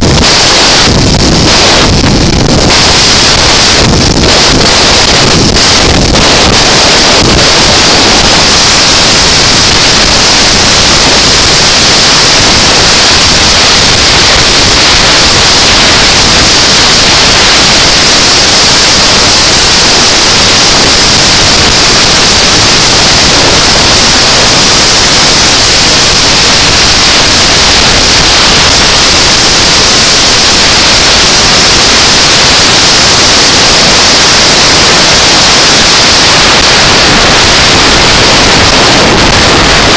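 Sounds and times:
wind rushing over microphone: 0.0 - 39.9.

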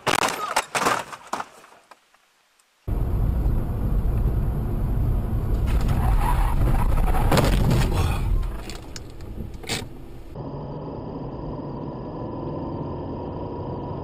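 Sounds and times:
car crash scraping and impacts: 0.0 - 1.8, 5.5 - 10.4
car engine low rumble: 2.9 - 14.0.

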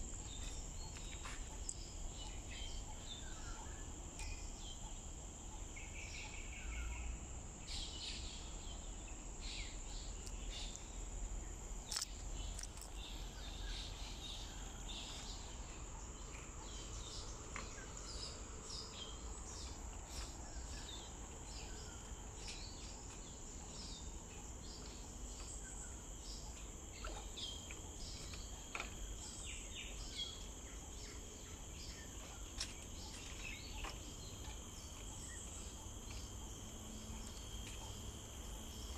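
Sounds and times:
insect drone: 0.0 - 38.9.

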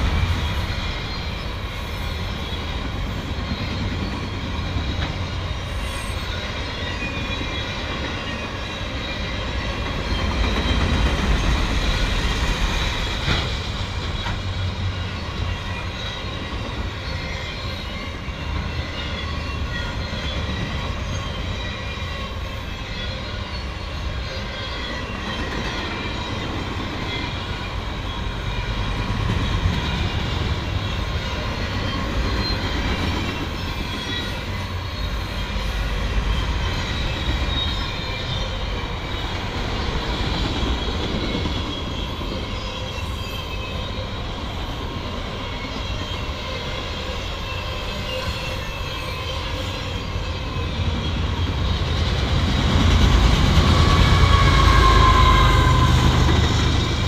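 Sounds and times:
train wheels rumbling on rail: 0.0 - 57.0
high squealing tones: 45.4 - 57.0.

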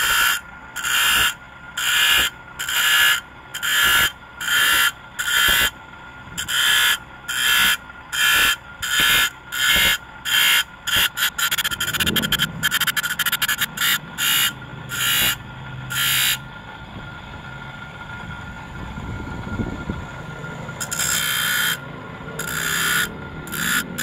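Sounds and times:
saw teeth grinding rasps: 0.0 - 5.7, 6.4 - 16.4, 20.8 - 21.8, 22.4 - 24.0
electric motor running: 0.0 - 5.8, 6.4 - 16.4, 20.8 - 21.8, 22.4 - 24.0.

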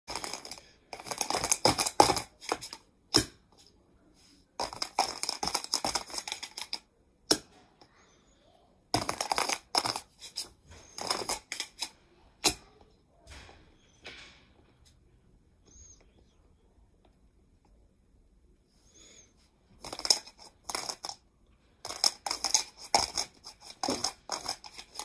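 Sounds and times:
plastic dice clicking and clattering: 0.1 - 3.3, 4.6 - 6.8, 9.0 - 11.9, 19.8 - 21.2, 21.8 - 25.0.

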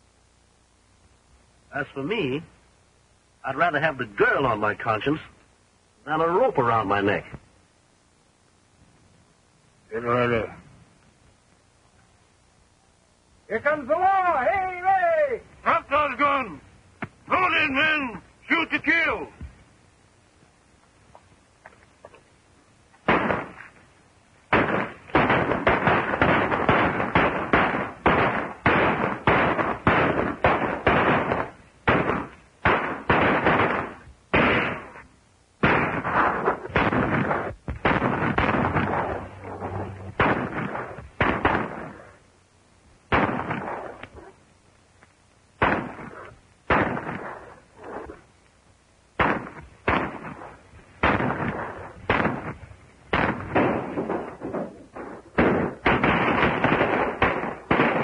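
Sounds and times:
gunshots: 23.0 - 23.7, 24.5 - 35.0, 35.6 - 42.2, 43.1 - 44.3, 45.6 - 48.2, 49.2 - 58.0.

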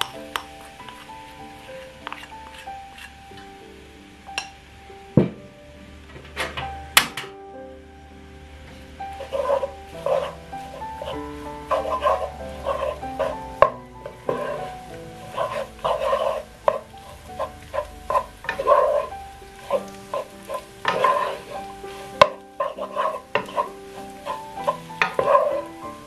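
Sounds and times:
wooden spatula scraping wok: 0.0 - 3.6, 8.4 - 26.0
rice sizzling: 0.0 - 26.0
soft background music: 0.0 - 26.0
spatula knocking pan: 9.2 - 26.0.

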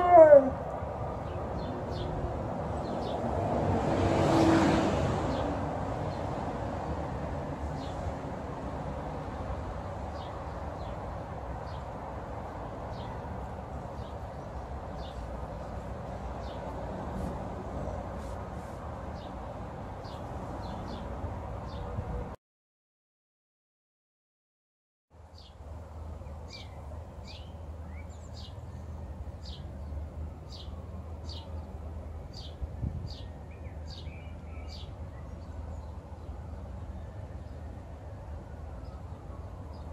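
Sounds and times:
distant traffic rumble: 0.0 - 22.4, 25.1 - 39.9
bird chirping: 26.2 - 36.0.

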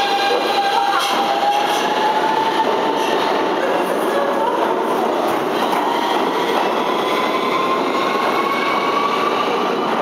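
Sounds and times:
subway train rumbling on rails: 0.0 - 10.0.

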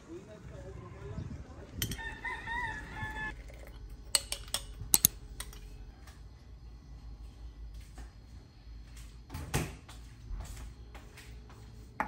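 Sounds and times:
rooster crowing: 1.8 - 3.4.

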